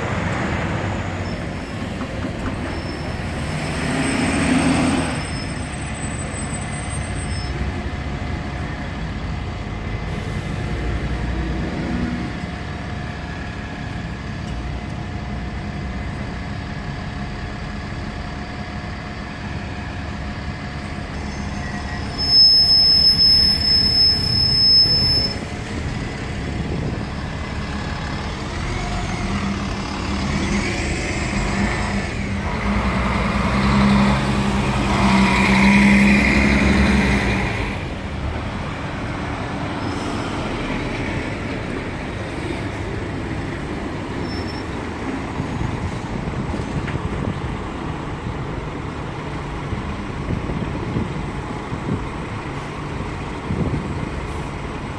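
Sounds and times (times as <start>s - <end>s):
bus passing: 0.0s - 54.9s
diesel bus engines running: 0.0s - 54.9s.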